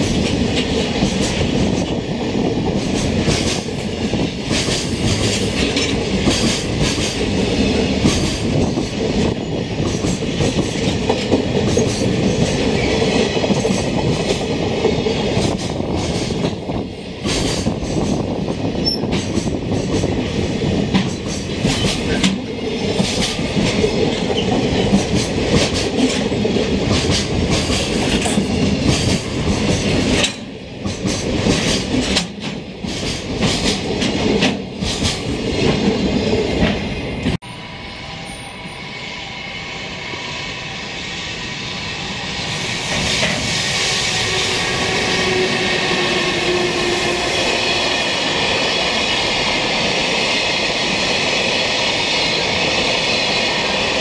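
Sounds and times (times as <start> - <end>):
freight train rumble: 0.0 - 54.0
wheels clacking over rail joints: 20.9 - 36.9.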